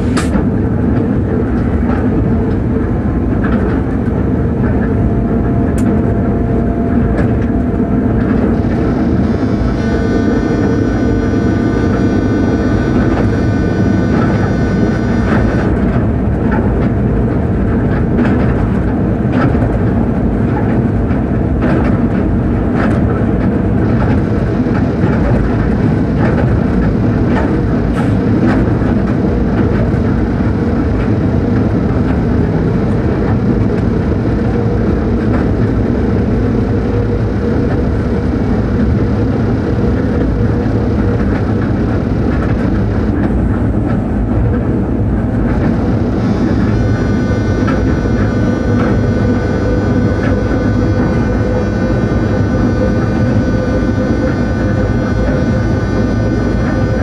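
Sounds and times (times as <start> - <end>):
wheels rumbling on rail: 0.0 - 57.0
high steady tones: 45.4 - 57.0.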